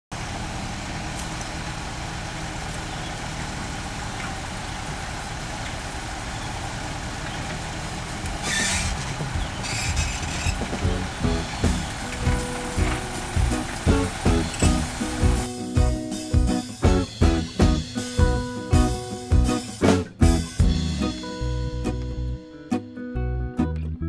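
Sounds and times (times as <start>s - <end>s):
diesel engine running: 0.1s - 22.6s
knocks: 8.2s - 11.2s.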